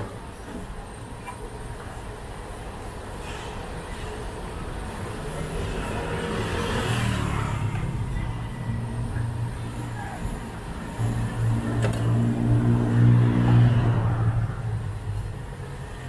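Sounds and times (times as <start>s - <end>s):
motor vehicle passing: 11.0s - 14.7s.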